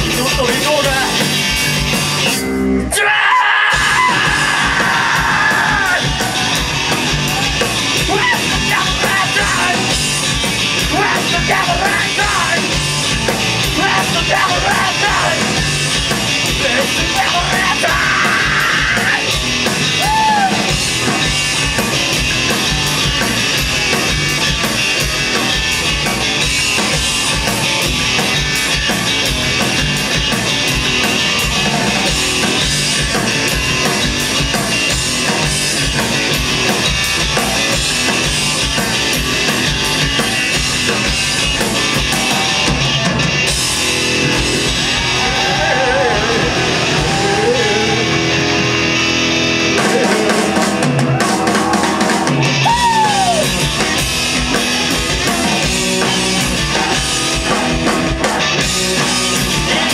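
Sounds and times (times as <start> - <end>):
bass guitar: 0.0 - 59.9
distorted electric guitar: 0.0 - 59.9
drum kit: 0.0 - 59.9
person singing: 55.1 - 59.9.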